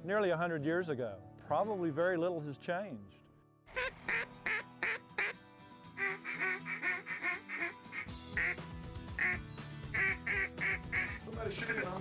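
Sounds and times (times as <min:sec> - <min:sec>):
background music: 0:00.0 - 0:12.0
duck call quacking: 0:03.8 - 0:05.4, 0:06.0 - 0:08.6, 0:09.2 - 0:12.0.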